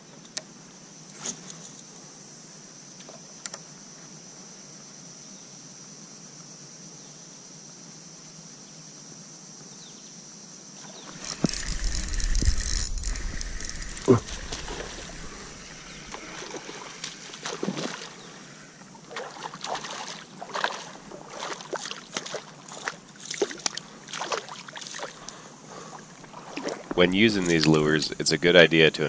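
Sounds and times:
faint ticks: 0:03.0 - 0:03.7
high-pitched insect drone: 0:10.5 - 0:26.2, 0:27.0 - 0:28.4
water sloshing against boat: 0:10.8 - 0:28.2.

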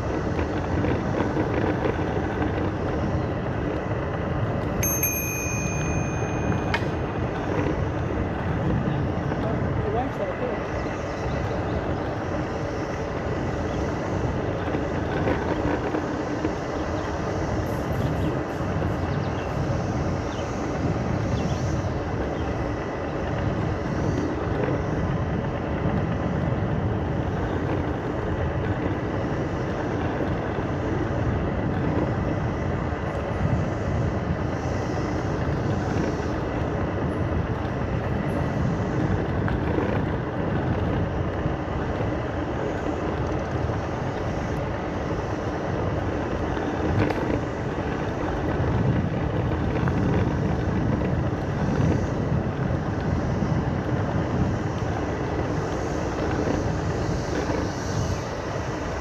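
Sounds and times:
tyres rumbling over trail: 0:00.0 - 0:59.0
wind rushing over microphone: 0:00.0 - 0:59.0.

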